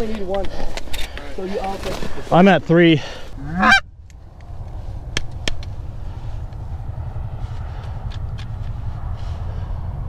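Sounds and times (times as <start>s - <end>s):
steady low rumble: 2.6s - 10.0s
goose honk rising in pitch: 3.4s - 3.9s.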